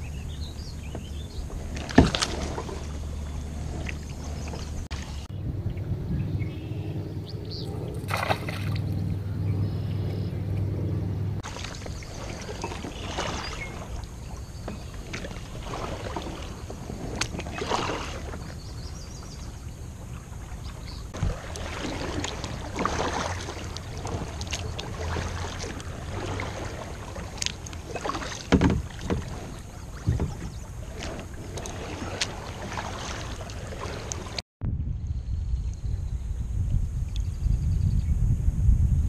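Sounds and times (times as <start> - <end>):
paddle strokes splashing: 0.0 - 5.4, 6.5 - 34.4
water lapping against kayak hull: 0.0 - 34.4.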